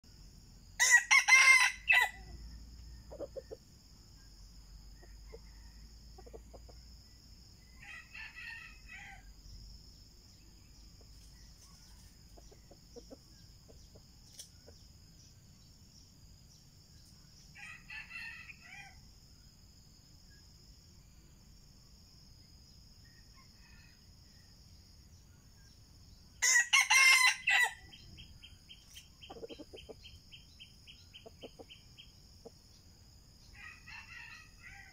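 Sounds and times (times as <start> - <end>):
roosters crowing: 0.8 - 3.5, 7.6 - 9.4, 17.6 - 19.0, 26.4 - 28.0, 33.5 - 34.9.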